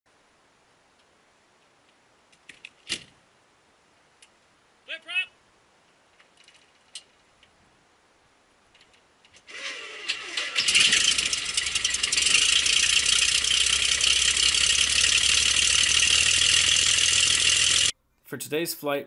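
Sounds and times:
starter cranking with rising whine: 0:09.4 - 0:17.9
aircraft engine running: 0:09.6 - 0:17.9.

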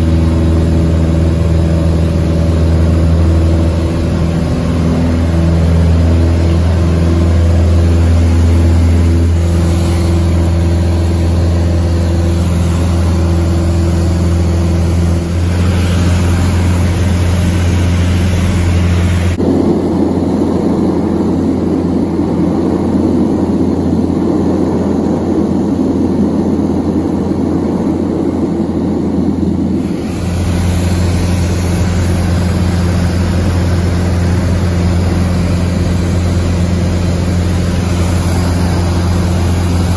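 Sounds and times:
airplane engine drone in cabin: 0:00.0 - 0:39.9.

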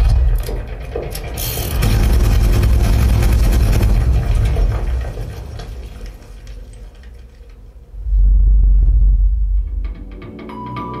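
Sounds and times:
deep rumble with crackling: 0:00.0 - 0:10.3.

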